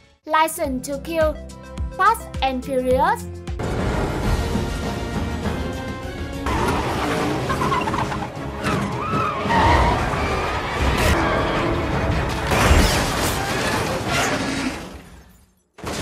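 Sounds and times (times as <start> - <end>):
music: 0.0 - 13.5
car engine noise: 5.5 - 12.4
car tyres squealing and skidding: 6.4 - 15.0.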